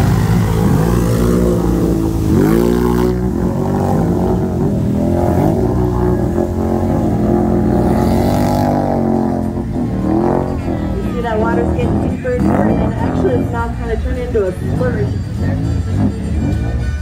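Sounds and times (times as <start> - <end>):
atv engines revving: 0.0 - 17.0
quads churning through mud: 0.0 - 17.0.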